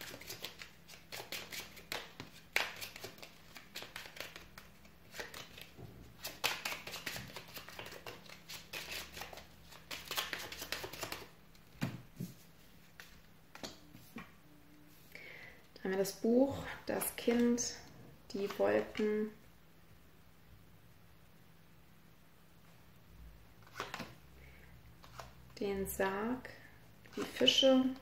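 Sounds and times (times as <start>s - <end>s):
cards being shuffled: 0.0s - 14.3s, 18.4s - 19.1s, 23.6s - 24.2s, 25.0s - 25.4s.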